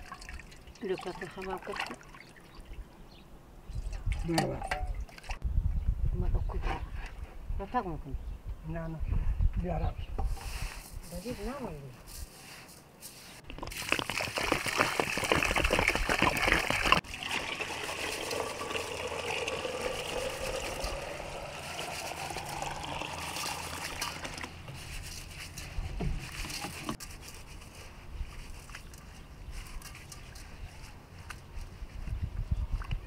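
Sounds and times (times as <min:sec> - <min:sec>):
water sloshing and swishing: 0:00.0 - 0:02.8
hands rubbing rice grains: 0:10.3 - 0:13.4.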